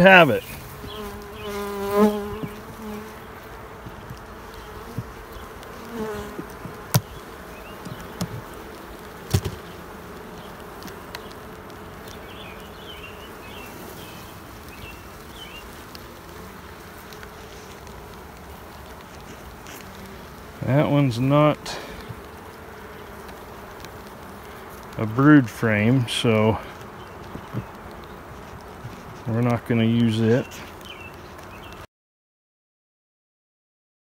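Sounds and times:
honeybees buzzing: 0.0 - 31.9
sharp knocks: 6.6 - 7.2, 9.3 - 9.6.

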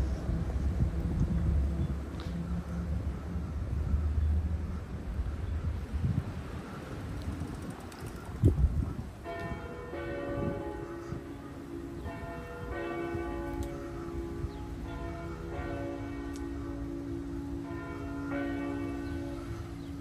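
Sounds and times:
church bells ringing: 9.2 - 20.0.

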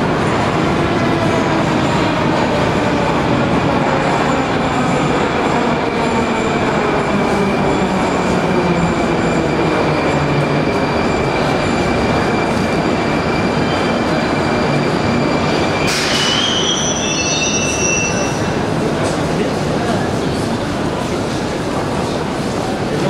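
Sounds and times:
metal wheel squeal: 13.7 - 18.6.

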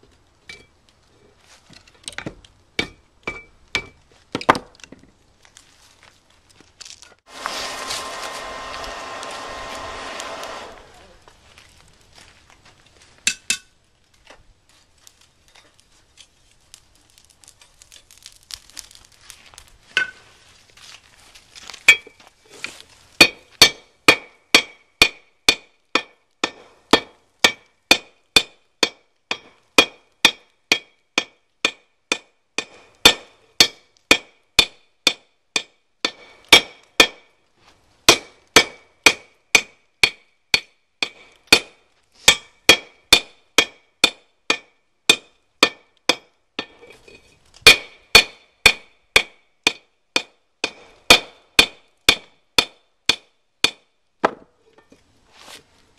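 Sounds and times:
hammer striking metal on anvil: 23.2 - 37.2, 42.3 - 46.8, 47.7 - 54.4.

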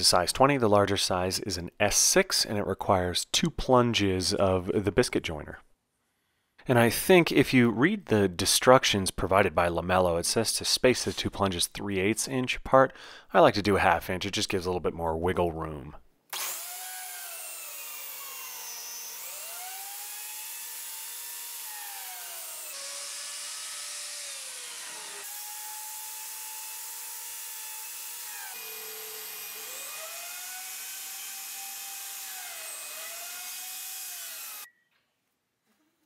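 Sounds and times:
biscuit joiner motor whine: 16.4 - 34.7.

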